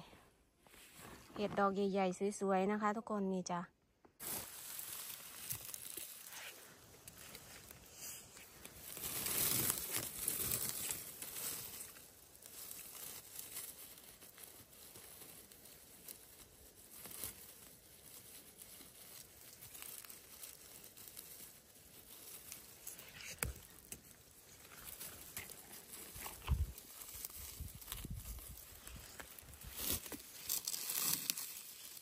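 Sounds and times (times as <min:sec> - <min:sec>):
rustling of clothing and vegetation: 0:00.5 - 0:02.3, 0:04.1 - 0:32.0.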